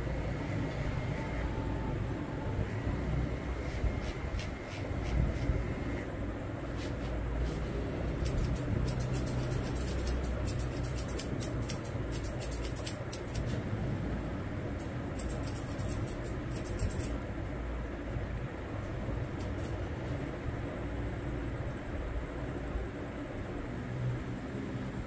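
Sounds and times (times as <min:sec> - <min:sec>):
low background rumble: 0:00.0 - 0:25.0
scissors snipping hair: 0:08.2 - 0:13.6, 0:14.8 - 0:17.2, 0:18.8 - 0:19.9.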